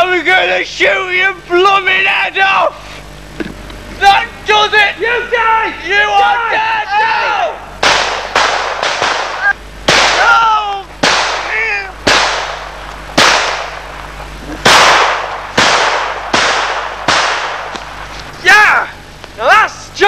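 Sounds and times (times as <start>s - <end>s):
short yells: 1.6s - 2.8s, 4.0s - 7.7s, 9.3s - 12.0s, 18.4s - 20.0s
pistol shots: 7.8s - 10.4s, 11.0s - 14.0s, 14.6s - 18.0s.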